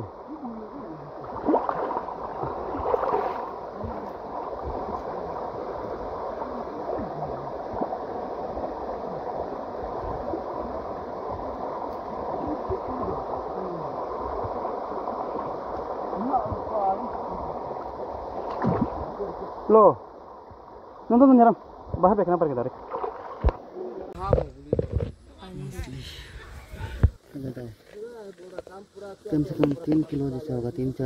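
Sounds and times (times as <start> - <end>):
river water rushing: 0.0 - 21.8.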